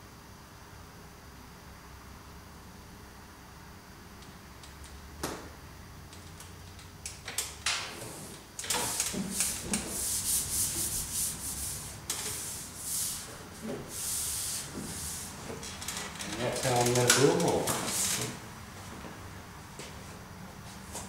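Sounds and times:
hands rubbing paper sheet: 8.0 - 18.2.

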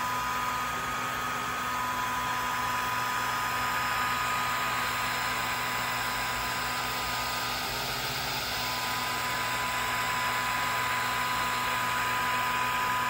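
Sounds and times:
fan and air rushing: 6.4 - 9.2.

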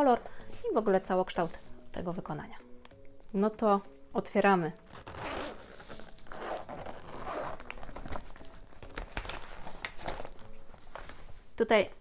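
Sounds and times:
fabric rustling: 4.8 - 11.6
zip being pulled open: 4.9 - 8.0.

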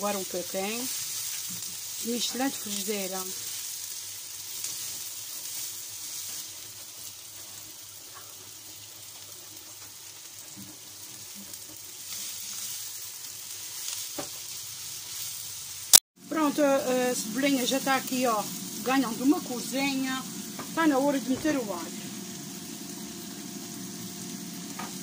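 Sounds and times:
onion sizzling in a frying pan: 0.0 - 25.0
spatula stirring in a pan: 0.3 - 15.8.

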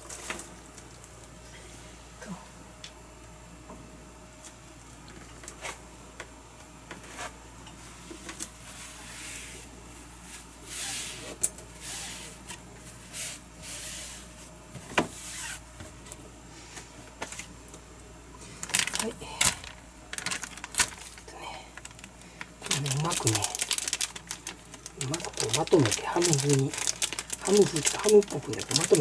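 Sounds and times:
plastic bag crinkling: 18.5 - 29.0.

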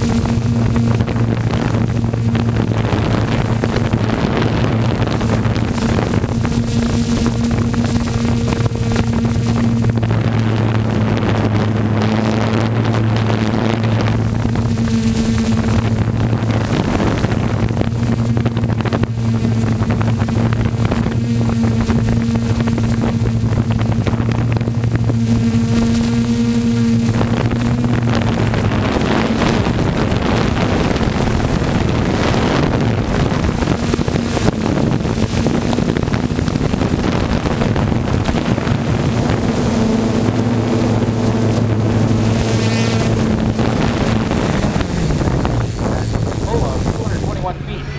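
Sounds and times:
drone propellers humming: 0.0 - 47.9
wind rushing over microphone: 0.0 - 47.9.

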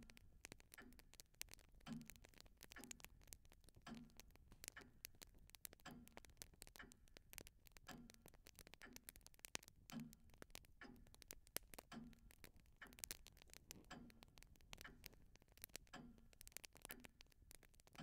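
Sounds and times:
clock ticking: 0.0 - 18.0
faint irregular clicks: 0.0 - 18.0.

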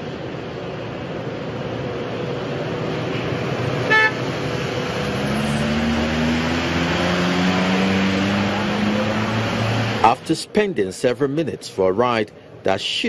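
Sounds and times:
vehicles driving through water: 2.7 - 10.5
car horn toot: 3.8 - 4.3.

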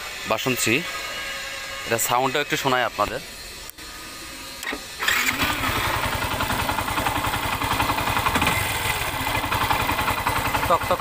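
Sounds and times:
motorcycle engine starting and idling: 4.6 - 11.0
engine knocking: 5.4 - 11.0.

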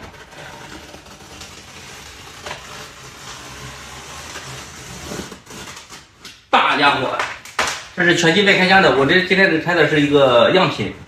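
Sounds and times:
knife cutting tape and cardboard: 0.0 - 6.5.

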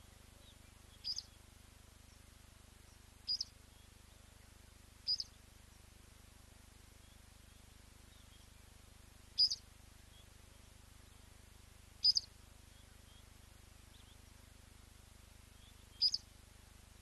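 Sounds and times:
faint steady background noise: 0.0 - 17.0
bird's sharp metallic tink call: 3.3 - 3.5, 9.4 - 9.6, 12.0 - 12.3, 16.0 - 16.2.

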